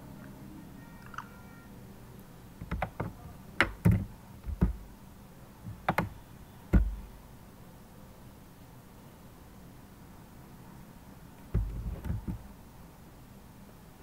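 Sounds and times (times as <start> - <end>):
computer keyboard keystrokes: 2.6 - 4.8, 5.7 - 7.0.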